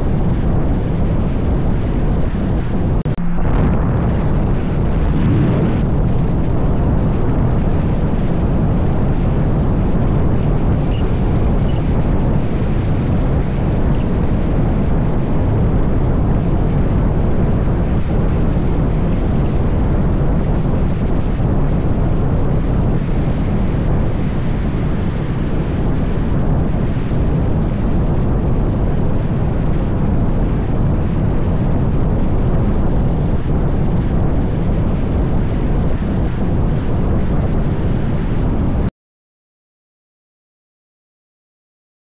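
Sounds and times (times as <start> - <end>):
wind buffeting microphone: 0.0 - 38.9
car road noise: 3.1 - 8.3.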